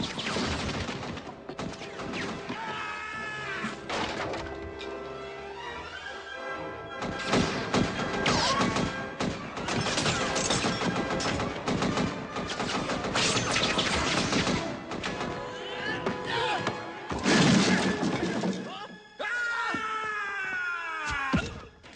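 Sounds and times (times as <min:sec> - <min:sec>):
action soundtrack music: 0:00.0 - 0:19.3
bangs and crashes: 0:17.1 - 0:18.7.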